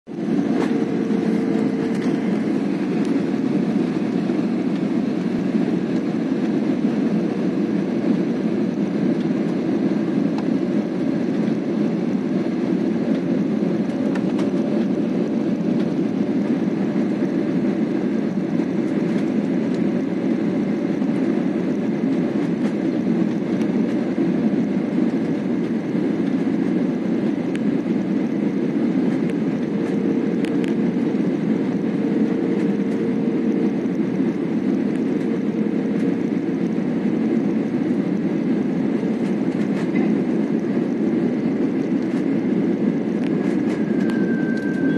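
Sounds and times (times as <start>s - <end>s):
jet engine and airflow roar: 0.0s - 44.9s.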